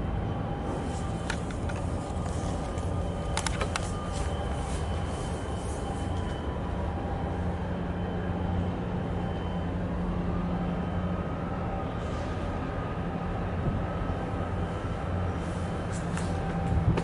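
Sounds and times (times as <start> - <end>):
faint steady whine: 0.0 - 17.0
ship engines rumbling: 0.0 - 17.0
sharp clicks: 3.3 - 3.9.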